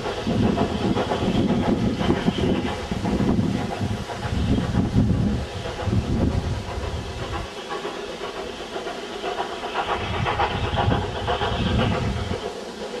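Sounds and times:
wind buffeting microphone: 0.0s - 7.5s, 9.8s - 12.5s
steam locomotive exhaust beats: 0.0s - 13.0s.

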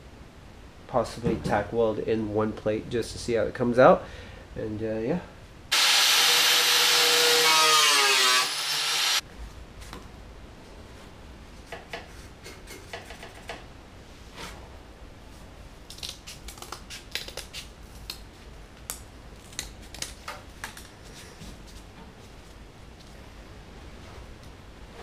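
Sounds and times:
cut-off wheel whining on sheet metal: 5.7s - 9.2s.

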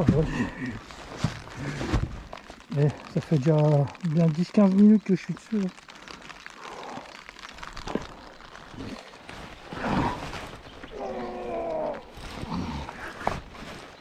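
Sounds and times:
rain hissing: 0.0s - 13.2s
man grunting and groaning: 11.0s - 13.0s.

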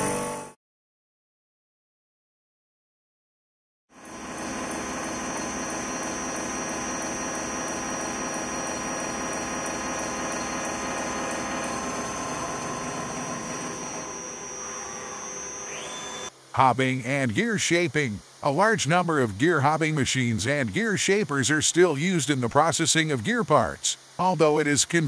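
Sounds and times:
gear-cutting machine hum and whine: 4.0s - 23.4s.

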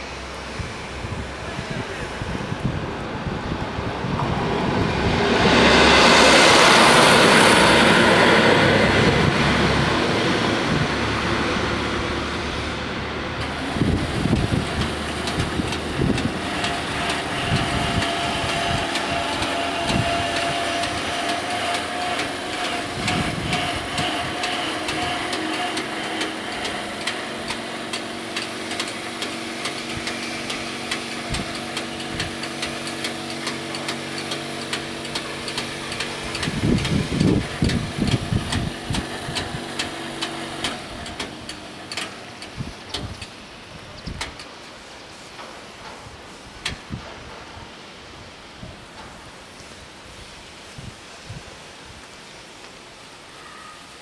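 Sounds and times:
whining barrier motor: 6.4s - 43.8s.

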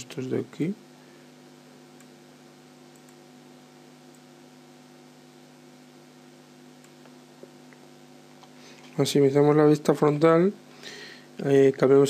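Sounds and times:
low electrical hum: 0.0s - 12.0s
faint click: 2.9s - 3.2s.

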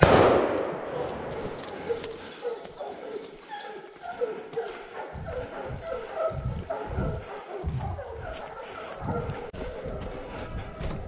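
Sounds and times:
hounds baying: 0.9s - 11.0s
low thumps: 5.2s - 8.2s.

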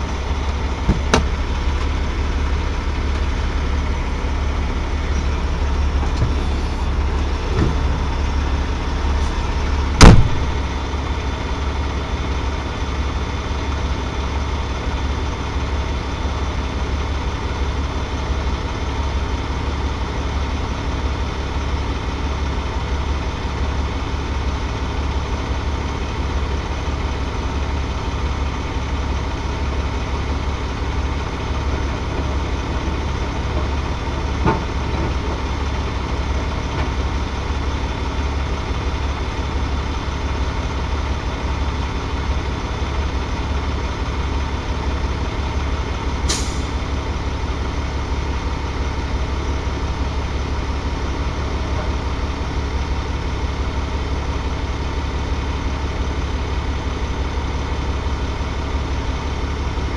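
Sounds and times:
truck diesel engine idling: 0.0s - 59.9s
short sharp hiss: 46.3s - 46.8s.

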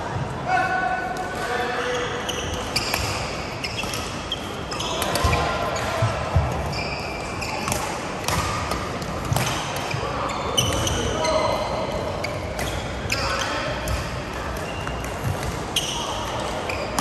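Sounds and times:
shoes squeaking on mat: 1.7s - 7.8s.

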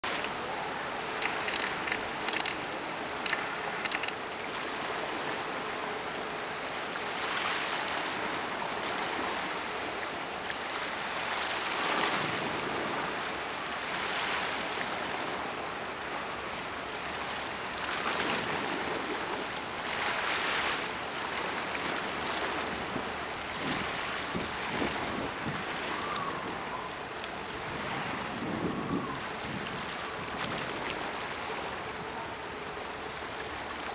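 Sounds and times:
water washing at the shore: 0.0s - 33.9s
small clicks: 1.2s - 2.6s, 3.2s - 4.2s
wind on the microphone: 21.3s - 33.0s.

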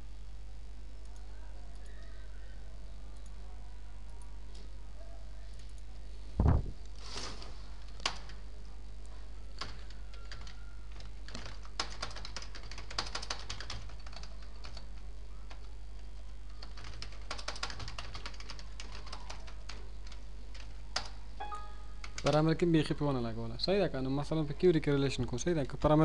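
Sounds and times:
steady low hum: 0.0s - 26.0s
computer keyboard typing: 7.9s - 8.4s, 9.6s - 15.8s, 16.5s - 22.5s.

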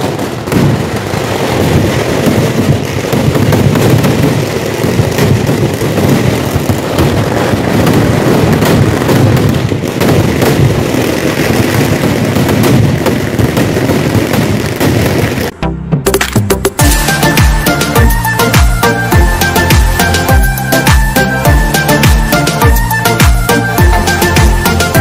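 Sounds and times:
fireworks banging: 0.0s - 25.0s.

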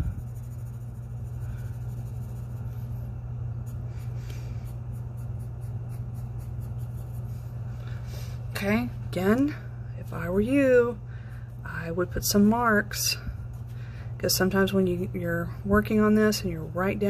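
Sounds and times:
pencil scratching on paper: 0.0s - 7.6s
steady low hum: 0.0s - 17.0s.

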